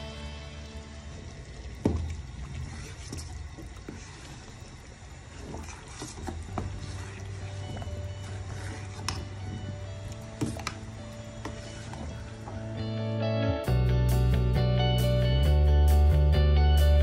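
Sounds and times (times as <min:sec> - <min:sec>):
spoon stirring sauce: 0:05.3 - 0:10.8.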